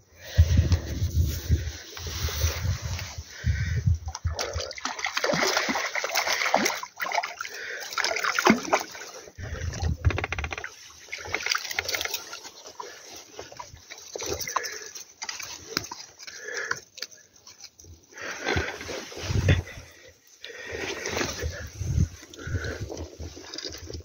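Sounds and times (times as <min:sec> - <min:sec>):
fish splashing in water: 0:04.1 - 0:18.8.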